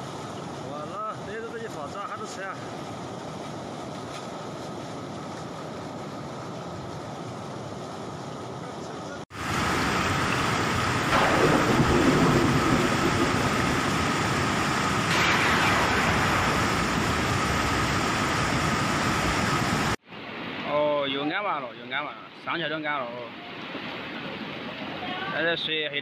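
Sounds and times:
floodwater rushing: 0:00.0 - 0:21.6.

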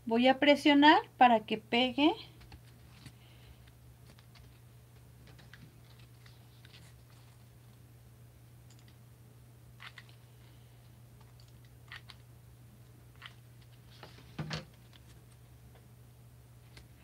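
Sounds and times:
small clicks and rustles: 0:02.4 - 0:07.8.

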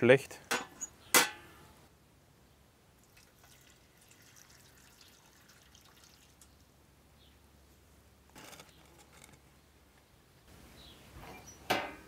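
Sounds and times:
liquid dripping and ticking: 0:03.0 - 0:06.6.

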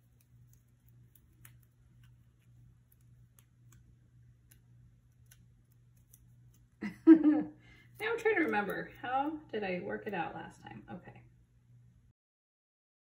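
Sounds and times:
paper sticker strip peeling: 0:00.0 - 0:06.8
faint low hum: 0:00.0 - 0:12.1.

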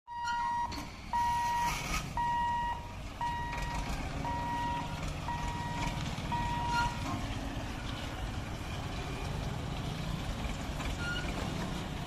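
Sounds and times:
crossing warning beeps: 0:00.1 - 0:07.0, 0:11.0 - 0:11.4
idling motorcycle and tractor engines: 0:00.2 - 0:12.0.

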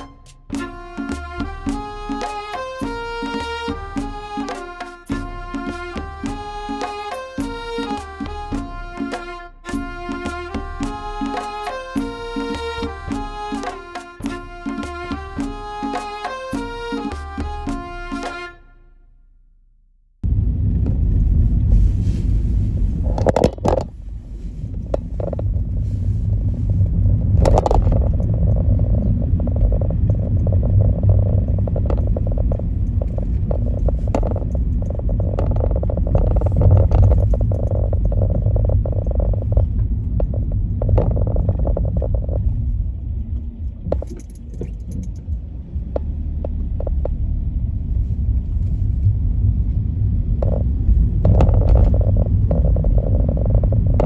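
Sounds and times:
car engine and tyres rumbling: 0:00.0 - 0:54.0
small knocks and rattles: 0:27.3 - 0:42.5, 0:50.4 - 0:54.0.

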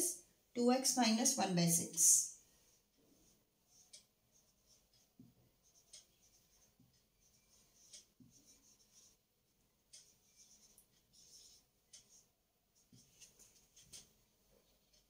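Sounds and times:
marker squeaking on whiteboard: 0:03.2 - 0:09.2, 0:09.9 - 0:14.2.

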